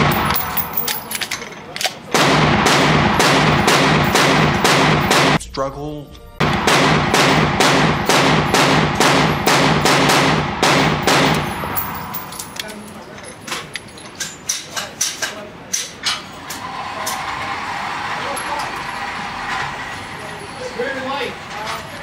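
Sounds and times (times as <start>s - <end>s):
rapid gunshots indoors: 0.0s - 1.1s, 2.1s - 5.4s, 6.4s - 12.4s
person speaking: 5.4s - 6.4s.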